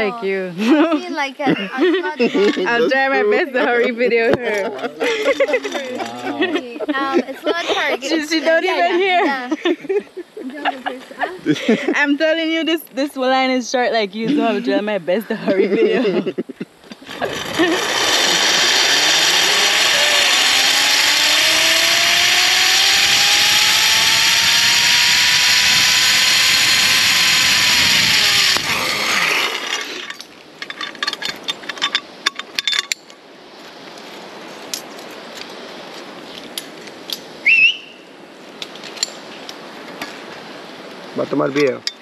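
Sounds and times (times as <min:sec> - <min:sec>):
zip-line pulley whirring whine: 0:17.0 - 0:30.3
metallic clicks and clinks: 0:30.0 - 0:33.2.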